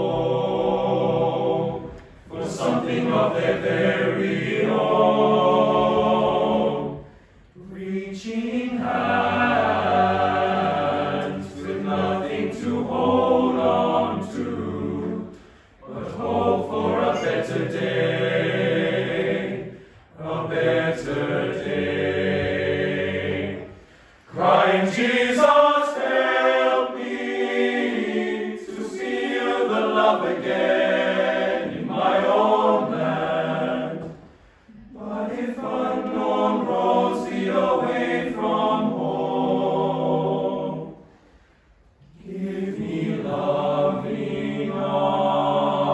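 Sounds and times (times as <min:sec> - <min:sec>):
boys' choir singing: 0:00.0 - 0:41.2, 0:42.1 - 0:45.9
singers breathing: 0:07.0 - 0:07.6, 0:15.3 - 0:15.8, 0:19.6 - 0:20.2, 0:23.7 - 0:24.3, 0:34.2 - 0:35.0, 0:41.0 - 0:42.1.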